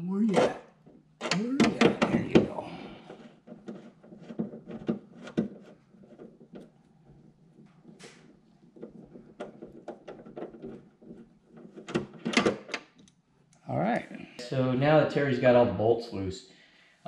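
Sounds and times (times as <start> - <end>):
nut driver clicking and knocking: 8.7 - 13.2.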